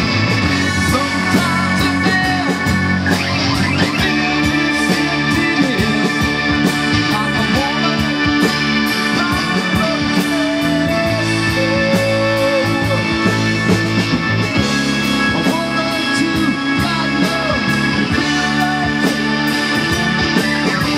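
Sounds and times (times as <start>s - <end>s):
bass guitar: 0.0s - 20.9s
electric guitar: 0.0s - 20.9s
keyboards: 0.0s - 20.9s.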